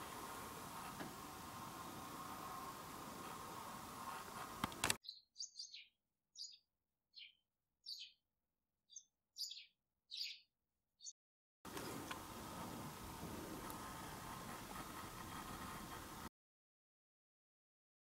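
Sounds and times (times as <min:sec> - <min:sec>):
faint steady hiss: 0:00.0 - 0:05.0, 0:11.7 - 0:16.3
sharp clicks: 0:04.6 - 0:05.0.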